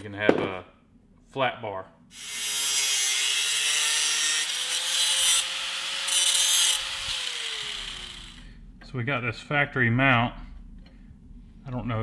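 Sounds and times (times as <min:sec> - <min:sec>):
angle grinder cutting steel: 0:02.2 - 0:08.5.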